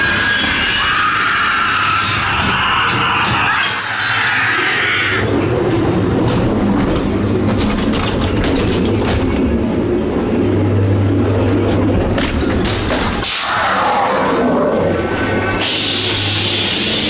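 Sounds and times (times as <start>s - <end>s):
ride car rumbling on track: 0.0s - 17.0s
steady low hum: 5.2s - 13.3s
wheels clacking: 5.3s - 9.7s.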